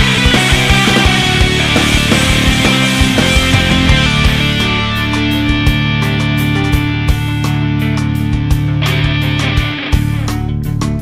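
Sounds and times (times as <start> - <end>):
cymbal-like wash: 0.0 - 7.0
rock music with guitar and drums: 0.0 - 11.0.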